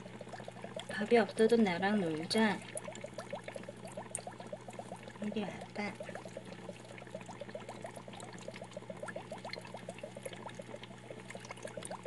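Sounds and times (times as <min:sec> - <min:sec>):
aquarium water bubbling: 0:00.0 - 0:12.0
steady low hum: 0:00.0 - 0:12.0.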